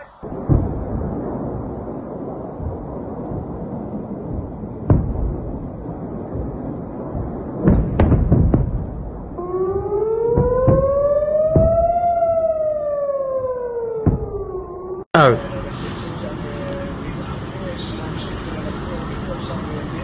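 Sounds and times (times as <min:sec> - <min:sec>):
constant low rumble: 0:00.0 - 0:20.0
explosions booming: 0:00.2 - 0:15.0
air-raid siren: 0:09.3 - 0:17.2.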